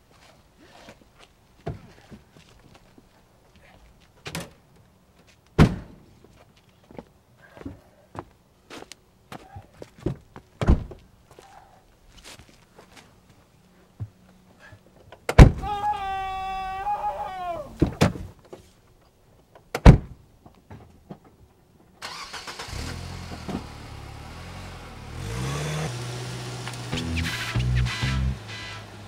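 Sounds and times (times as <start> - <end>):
car engine starting and revving: 22.0 - 29.0.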